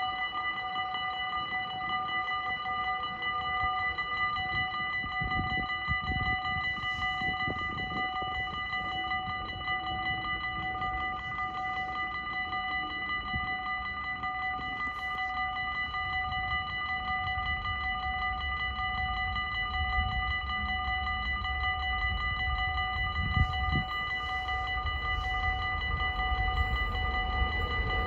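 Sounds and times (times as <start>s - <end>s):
level crossing warning bells: 0.0s - 28.0s
approaching train rumble: 14.6s - 28.0s.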